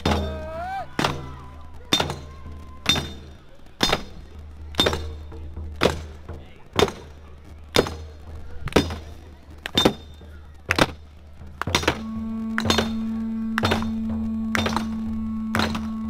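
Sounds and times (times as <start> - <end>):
slow percussive strikes: 0.0 - 16.0
low hum: 11.7 - 16.0
steady held note: 11.8 - 16.0.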